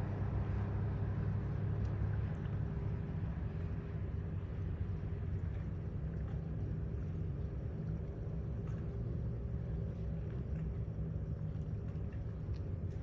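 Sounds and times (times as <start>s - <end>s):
faint hum: 0.0s - 13.0s.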